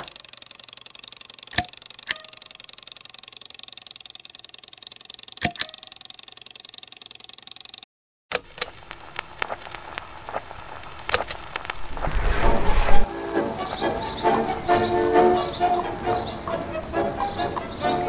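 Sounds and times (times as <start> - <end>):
sharp clicks: 0.0 - 3.0
gramophone hiss: 8.6 - 18.0.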